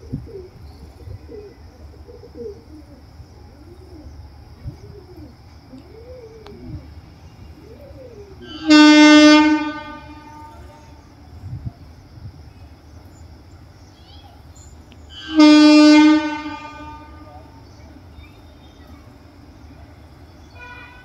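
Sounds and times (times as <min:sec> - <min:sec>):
bird calls: 0:00.0 - 0:21.0
train horn blast: 0:08.4 - 0:11.2, 0:15.1 - 0:17.6, 0:20.5 - 0:21.0.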